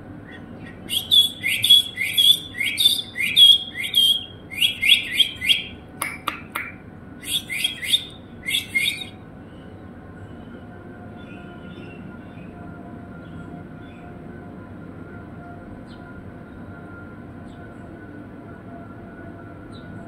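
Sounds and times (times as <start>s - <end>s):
shrill chirping calls: 0.3s - 9.2s
sharp clicks: 6.0s - 6.8s.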